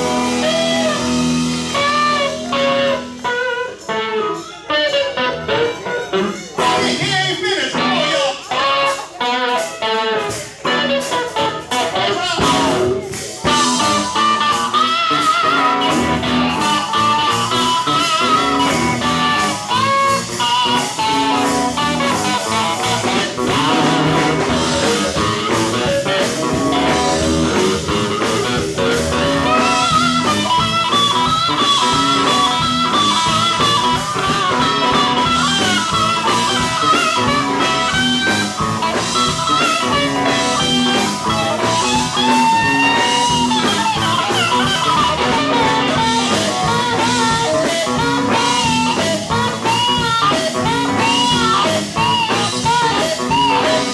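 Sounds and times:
drums: 0.0 - 53.9
electric guitar: 0.0 - 53.9
steel guitar sliding lead lines: 0.0 - 53.9.

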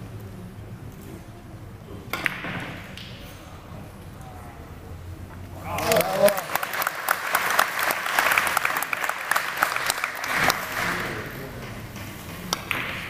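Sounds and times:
audience applauding: 5.7 - 11.2.

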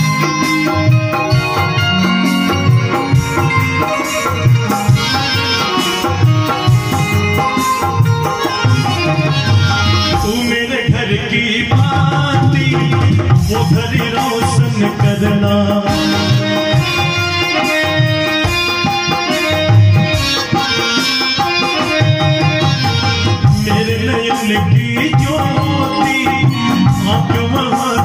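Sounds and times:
hand drum beat: 0.0 - 10.5
bulbul tarang melody: 0.0 - 10.8, 13.5 - 28.0
harmonium: 0.0 - 28.0.

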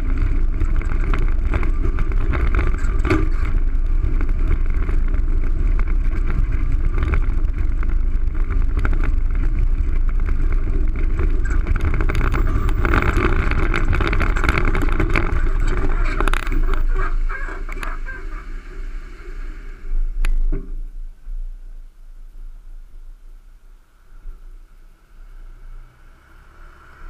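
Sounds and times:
harsh braking noise: 0.0 - 21.2
longboard wheels rumbling on asphalt: 0.0 - 27.0.

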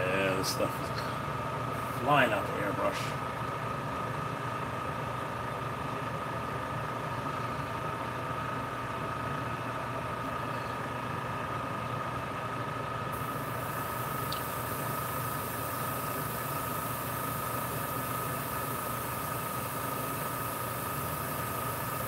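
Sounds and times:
small motor humming with whine: 13.1 - 22.0
high hiss: 13.2 - 22.0.

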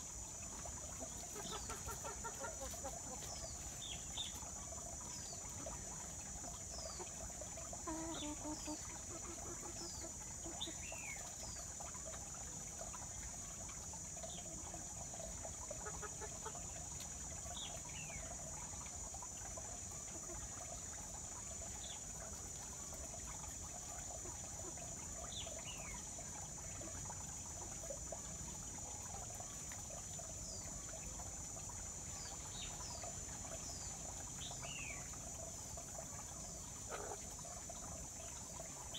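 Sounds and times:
hen clucking: 1.2 - 3.3.

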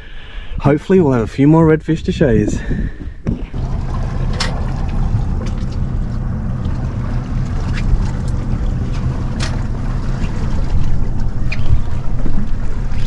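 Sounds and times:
wind buffeting microphone: 0.7 - 13.0
outboard engine idling: 3.4 - 13.0.

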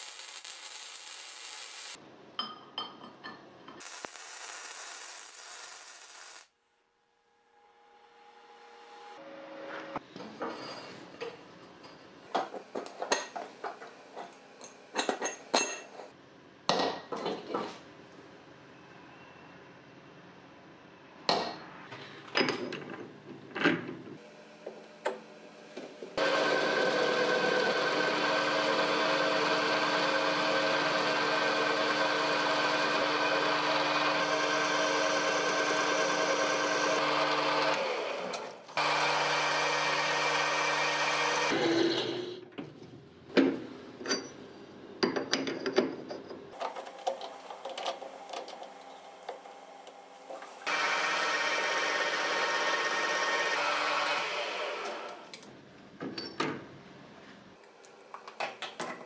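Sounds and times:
metal lathe running: 26.2 - 41.6, 50.7 - 55.2.

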